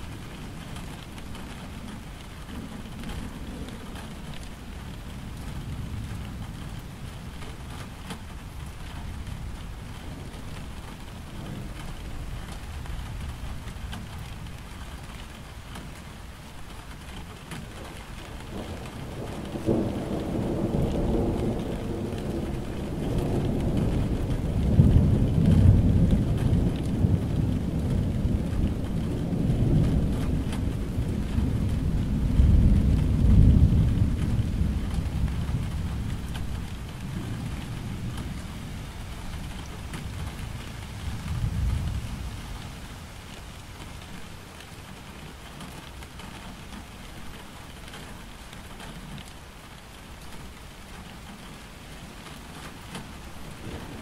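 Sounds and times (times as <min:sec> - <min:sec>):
steady rain falling: 0:00.0 - 0:54.0
low roll of thunder: 0:17.6 - 0:48.1, 0:52.0 - 0:54.0.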